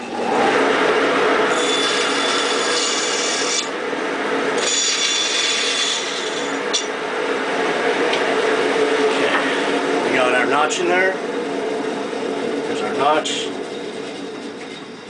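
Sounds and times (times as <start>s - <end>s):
bandsaw running: 0.0s - 7.1s
bandsaw blade cutting wood: 1.5s - 3.8s, 4.6s - 6.9s.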